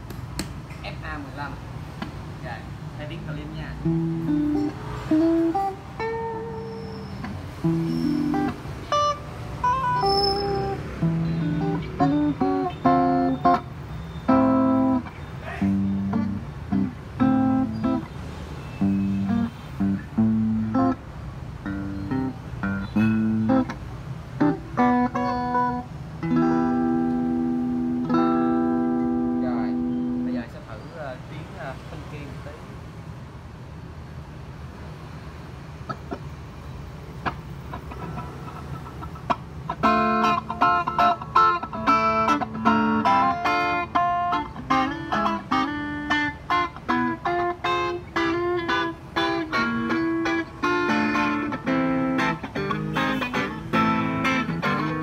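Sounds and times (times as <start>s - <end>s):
clean electric guitar notes and chords: 3.8s - 18.2s, 18.8s - 30.4s, 37.2s - 55.0s.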